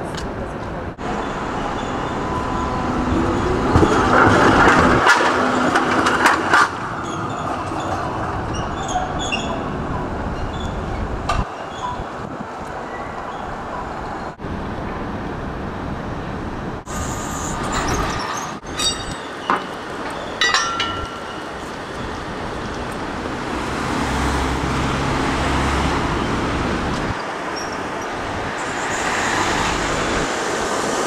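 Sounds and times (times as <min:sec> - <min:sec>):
street noise: 0:00.0 - 0:31.0
tram wheels on rails: 0:00.0 - 0:31.0
metallic clanks with squeals: 0:01.2 - 0:12.1, 0:16.9 - 0:23.0, 0:27.2 - 0:29.2.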